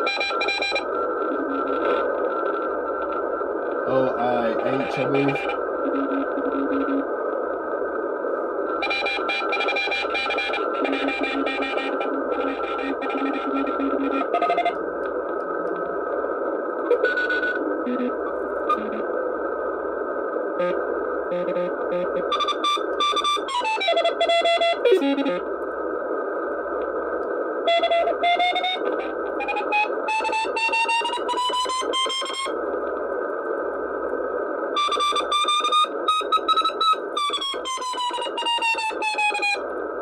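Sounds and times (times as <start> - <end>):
radio band hiss: 0.0 - 40.0
morse code beeping tones: 4.4 - 7.0, 17.0 - 19.0.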